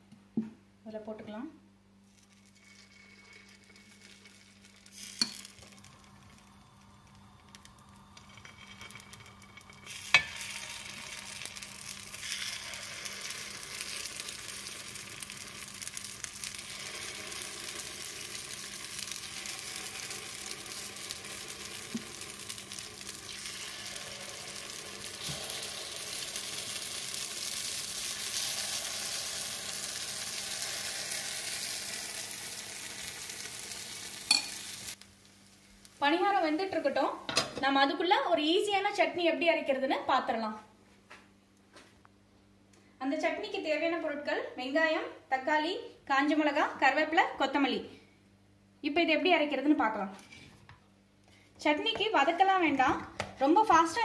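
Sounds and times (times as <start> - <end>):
batter sizzling in hot oil: 2.1 - 37.3.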